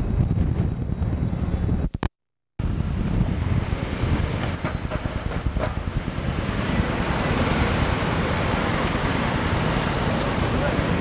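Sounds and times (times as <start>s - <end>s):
cars passing on street: 2.6s - 11.0s.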